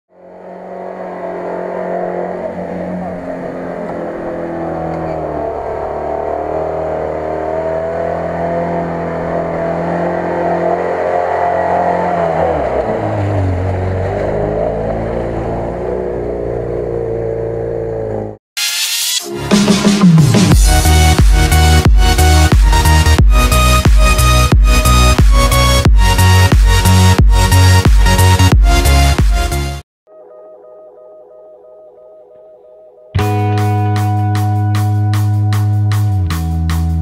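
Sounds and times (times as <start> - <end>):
engine revving high: 0.1 - 18.4
vehicle through mud and water: 0.1 - 18.4.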